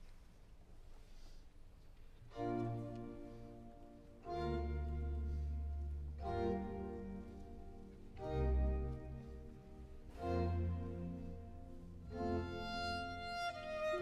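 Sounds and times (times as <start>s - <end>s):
baroque string ensemble chords: 2.2s - 14.0s.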